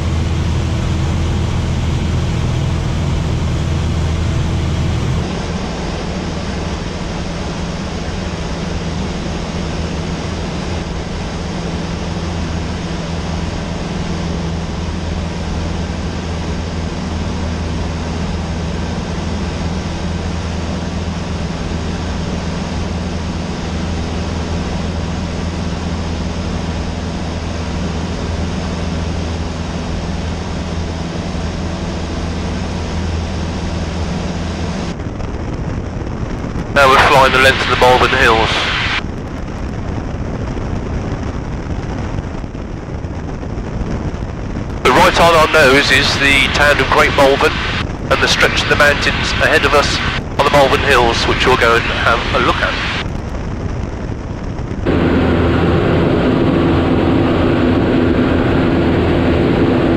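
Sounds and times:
airplane engine droning: 0:00.0 - 0:59.9
airflow rushing: 0:36.7 - 0:39.0, 0:44.8 - 0:53.3, 0:54.7 - 0:59.9.

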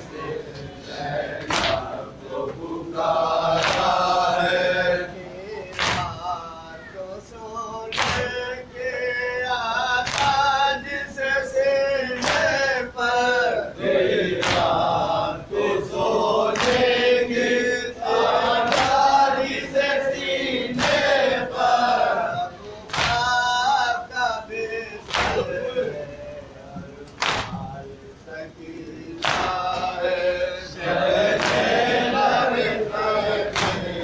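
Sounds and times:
men chanting in chorus: 0:00.0 - 0:34.0
hands slapping on chests: 0:01.4 - 0:01.9, 0:05.7 - 0:06.1, 0:10.0 - 0:10.4, 0:14.4 - 0:14.8, 0:16.5 - 0:16.9, 0:18.7 - 0:19.1, 0:20.8 - 0:21.1, 0:22.9 - 0:23.3, 0:29.2 - 0:29.9, 0:31.4 - 0:31.7, 0:33.5 - 0:33.9.

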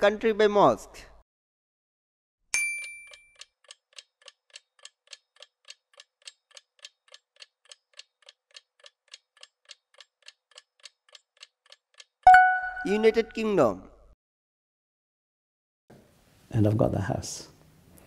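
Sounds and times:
clock ticking: 0:03.1 - 0:13.3.

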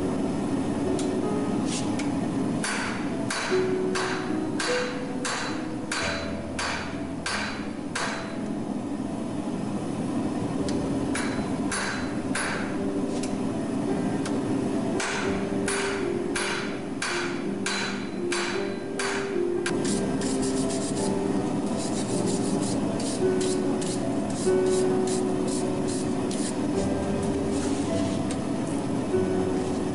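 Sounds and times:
steady low hum: 0:00.0 - 0:29.9
hammer striking hot metal on anvil: 0:02.6 - 0:08.4, 0:11.1 - 0:12.8, 0:15.0 - 0:20.0.

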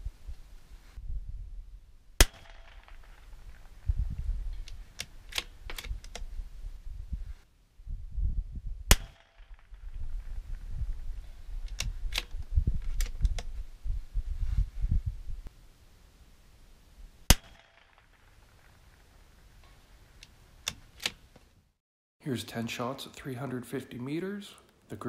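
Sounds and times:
rifle shots: 0:02.2 - 0:03.8, 0:08.9 - 0:10.0, 0:17.3 - 0:18.3
rifle bolt clicks: 0:04.6 - 0:06.3
low rumble: 0:09.5 - 0:15.5.

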